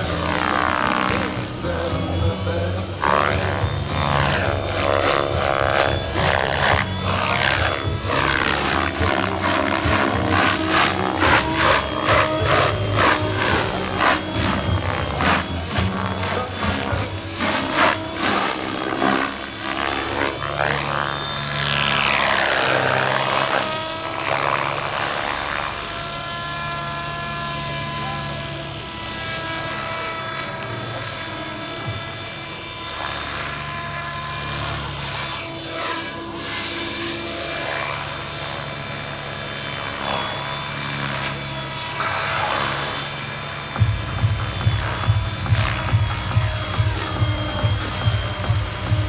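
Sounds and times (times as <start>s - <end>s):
low hum: 0.0s - 49.0s
rc helicopter rotor and motor: 0.0s - 49.0s.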